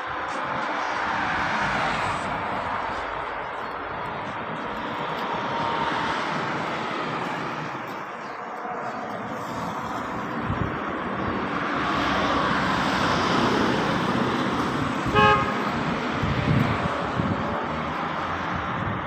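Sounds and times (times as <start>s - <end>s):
street traffic: 0.0s - 19.0s
car horn toot: 15.0s - 15.7s.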